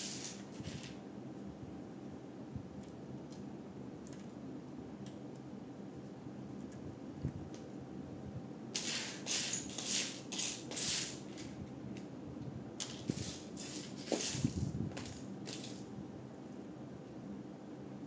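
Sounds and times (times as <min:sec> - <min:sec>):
plastic pieces rattling: 0:00.0 - 0:01.0, 0:08.8 - 0:11.6, 0:12.8 - 0:15.9.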